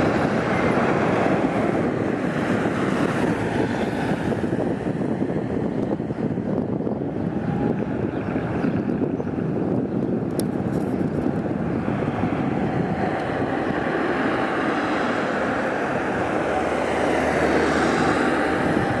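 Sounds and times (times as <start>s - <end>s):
cars driving by: 0.0s - 6.6s, 10.8s - 19.0s
van passing close: 11.2s - 19.0s.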